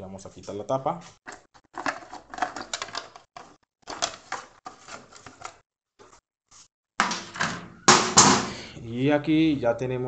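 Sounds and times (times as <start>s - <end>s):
scraping and rustling handling: 0.4s - 6.7s.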